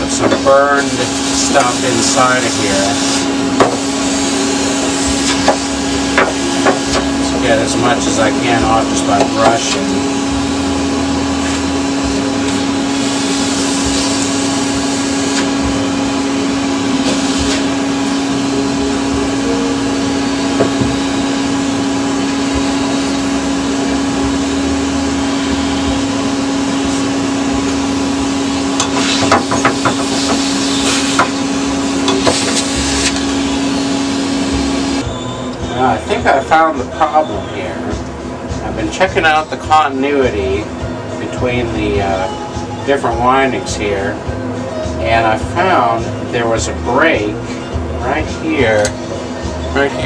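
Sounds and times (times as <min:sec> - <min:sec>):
vacuum cleaner humming: 0:00.0 - 0:50.0.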